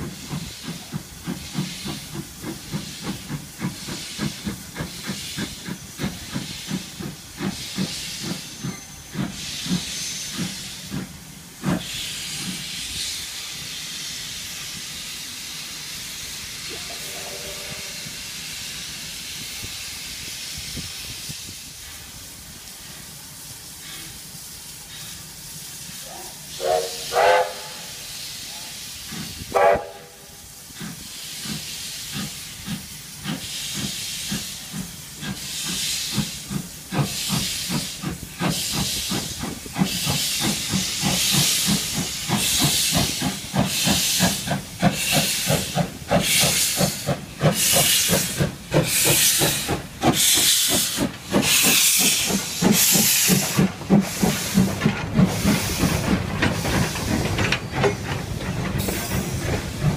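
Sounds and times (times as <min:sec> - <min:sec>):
steam hissing: 0:00.0 - 0:59.9
steam locomotive exhaust chuffs: 0:00.0 - 0:59.9
steam whistle toots: 0:16.6 - 0:18.3, 0:26.0 - 0:28.7, 0:29.5 - 0:30.6.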